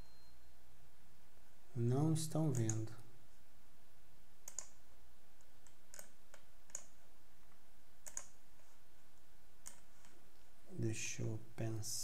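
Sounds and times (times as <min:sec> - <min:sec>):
computer mouse clicking: 0:02.5 - 0:02.9, 0:04.4 - 0:04.8, 0:05.4 - 0:07.0, 0:08.0 - 0:08.4, 0:09.6 - 0:10.2.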